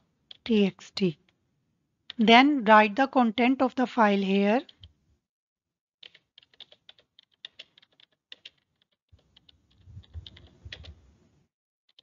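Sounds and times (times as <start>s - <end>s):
keyboard typing: 0.3s - 0.6s, 6.0s - 11.0s.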